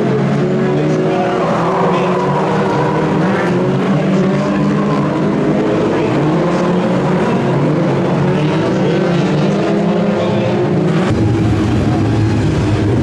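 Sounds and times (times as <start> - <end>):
stock car engines roaring: 0.0 - 13.0.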